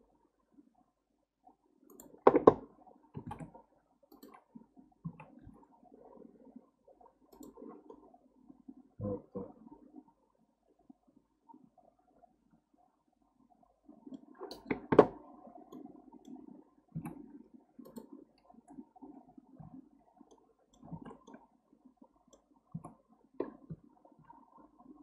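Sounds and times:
mouse and keyboard clicking: 0:04.1 - 0:04.4, 0:17.8 - 0:18.1.

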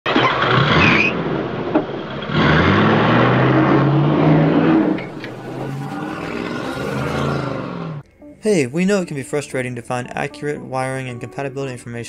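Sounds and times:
car engine revving: 0:00.1 - 0:08.0.

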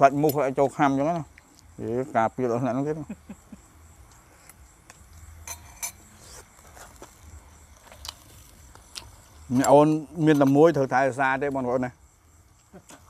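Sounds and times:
spoons clinking against bowls: 0:05.4 - 0:06.0.

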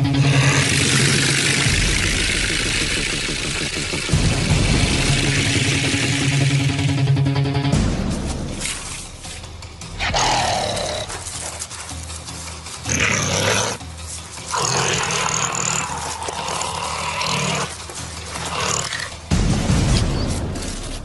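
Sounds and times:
animal growling and hissing: 0:00.0 - 0:03.6, 0:10.0 - 0:11.8, 0:12.8 - 0:19.2.

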